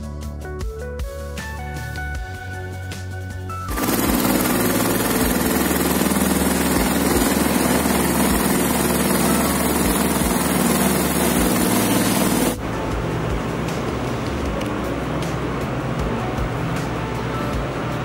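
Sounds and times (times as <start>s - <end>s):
boat engine running: 3.7s - 18.0s.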